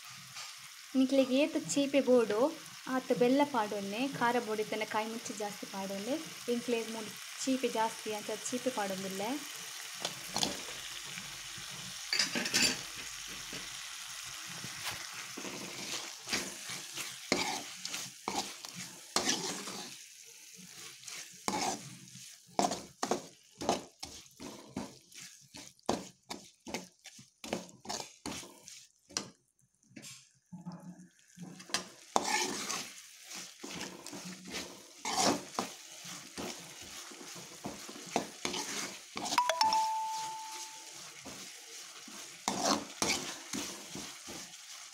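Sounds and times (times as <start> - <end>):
light sizzle of frying: 0.0 - 44.9
steel ladle scraping a pan: 10.1 - 10.7, 12.1 - 12.9, 14.8 - 20.0, 20.6 - 29.3, 31.4 - 44.9.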